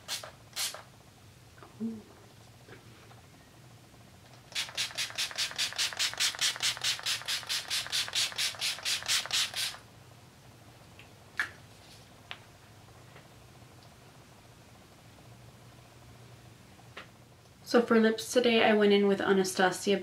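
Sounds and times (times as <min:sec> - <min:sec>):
spray bottle spritzing: 0:00.0 - 0:00.8, 0:04.5 - 0:09.8.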